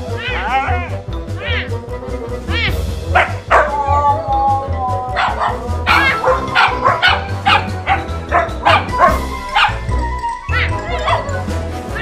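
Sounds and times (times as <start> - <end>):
background music with beat: 0.0 - 12.0
dog howling and yowling: 3.2 - 11.4.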